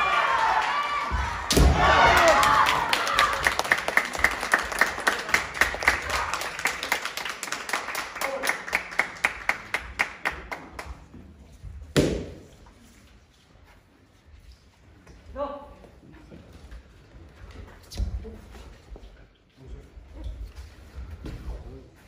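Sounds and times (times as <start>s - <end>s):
spectators applauding: 0.0s - 10.9s
loud thump: 1.2s - 2.0s.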